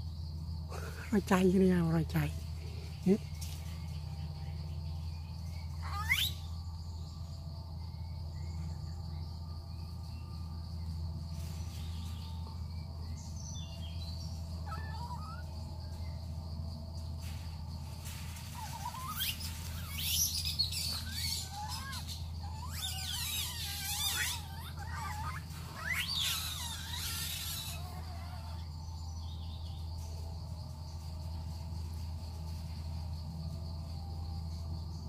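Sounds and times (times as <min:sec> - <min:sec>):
steady low hum: 0:00.0 - 0:35.0
high-pitched chirping calls: 0:05.7 - 0:06.5, 0:14.3 - 0:15.5, 0:18.6 - 0:28.6.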